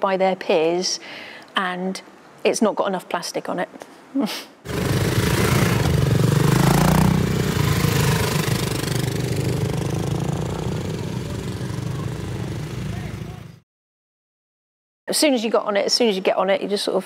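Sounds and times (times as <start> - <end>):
motorcycle engines pulling away: 4.7 - 13.6.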